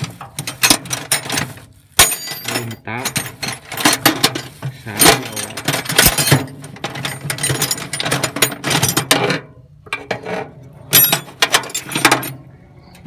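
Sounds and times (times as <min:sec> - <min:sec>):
spanner clinking against nut: 0:02.0 - 0:09.1.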